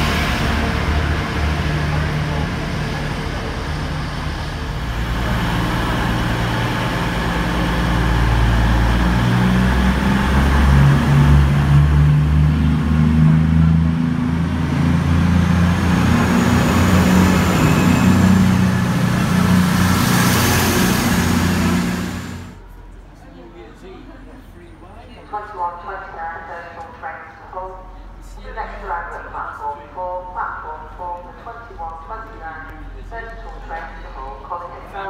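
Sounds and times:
diesel train engines running: 0.0 - 23.1.

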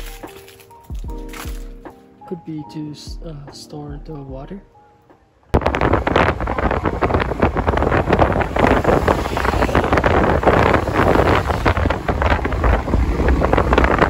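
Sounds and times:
wind buffeting microphone: 5.6 - 14.0.

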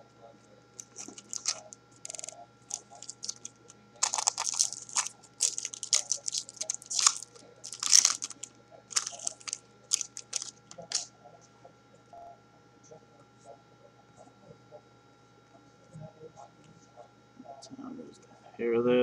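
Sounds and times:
wrapper crinkling and tearing: 0.8 - 11.1.

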